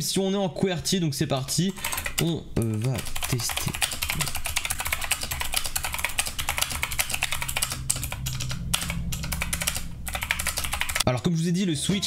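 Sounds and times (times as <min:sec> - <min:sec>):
clicky keyboard typing: 0:01.5 - 0:11.1.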